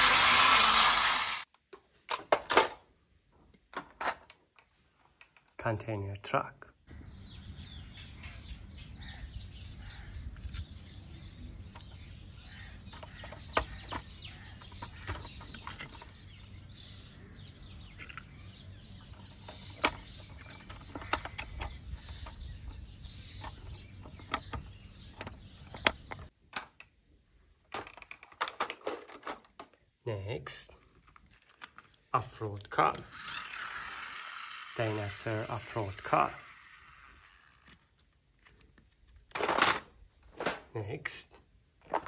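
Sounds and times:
small birds chirping: 6.8s - 26.4s.

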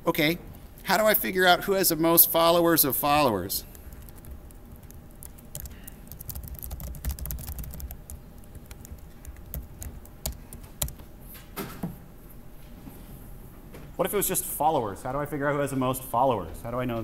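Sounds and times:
low room rumble: 0.0s - 17.0s
laptop keyboard typing: 3.7s - 11.0s.

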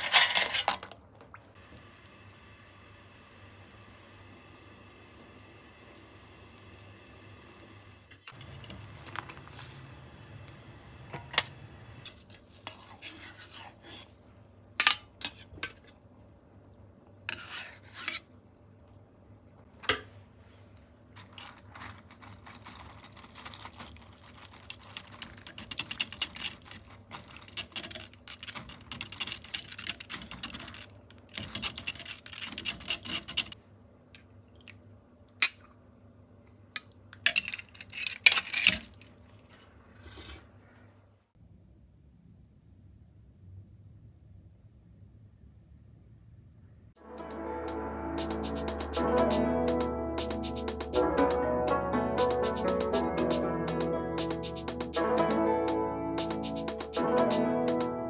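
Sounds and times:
spoon scraping through mesh strainer: 0.0s - 0.8s, 21.2s - 30.8s.

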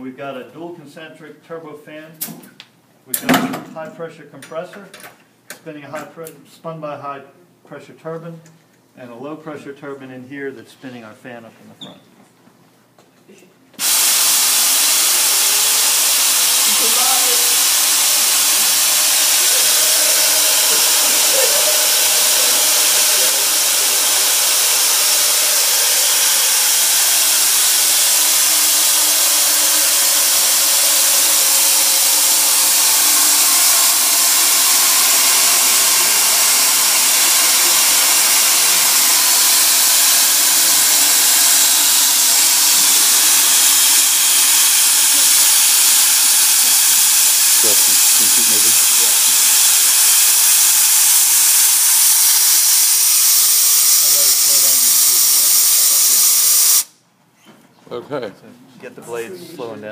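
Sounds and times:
air hissing through model engine: 13.8s - 57.0s.

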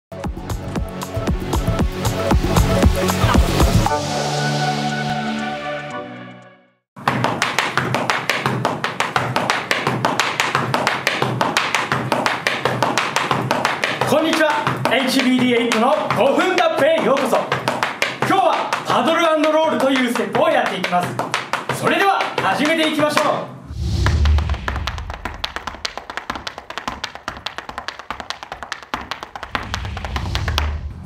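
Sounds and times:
electronic music with punchy drums: 0.1s - 4.0s
tap shoes on hard floor: 7.0s - 23.4s, 24.2s - 30.9s.

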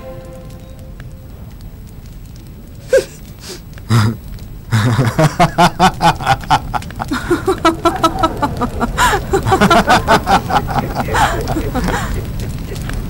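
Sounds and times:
people's rhythmic voices: 6.2s - 12.2s.

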